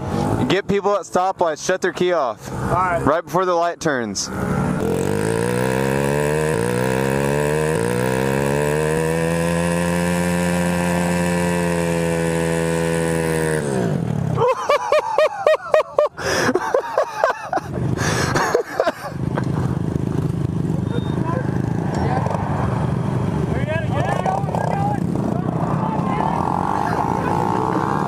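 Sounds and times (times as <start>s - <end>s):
minibike engine running: 4.3s - 14.4s, 17.9s - 28.0s
minibike engines blipping: 18.0s - 28.0s.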